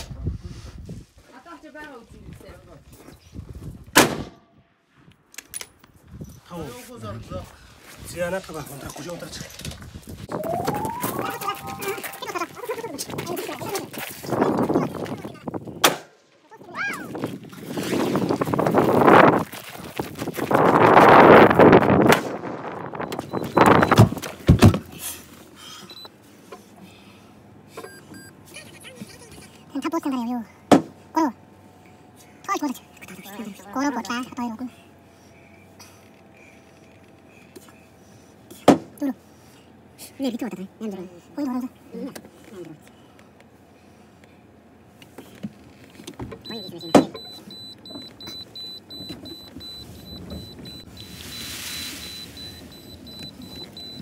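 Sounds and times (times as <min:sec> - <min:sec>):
car door shutting: 0:23.1 - 0:24.9
car warning chime beeping: 0:27.8 - 0:28.4, 0:46.4 - 0:54.0.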